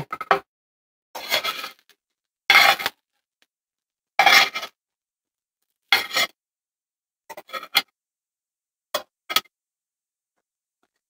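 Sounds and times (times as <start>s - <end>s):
metal fork scraping bowl and pan: 1.2s - 1.9s, 2.5s - 3.0s, 4.2s - 4.8s, 5.9s - 6.4s, 7.3s - 7.9s.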